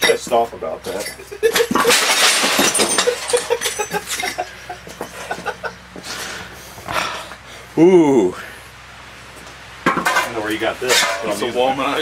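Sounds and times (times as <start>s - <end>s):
glass shards clinking and scraping: 0.0s - 4.5s, 10.0s - 11.5s.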